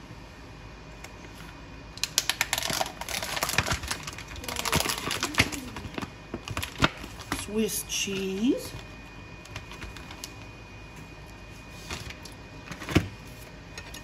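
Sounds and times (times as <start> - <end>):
plastic packaging clicking and crinkling: 2.0 - 7.5, 9.4 - 10.4.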